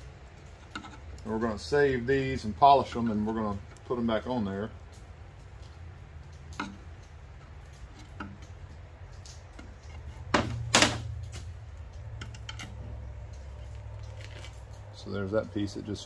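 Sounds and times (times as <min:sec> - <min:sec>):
sharp snaps of metal prying: 0:06.3 - 0:14.6.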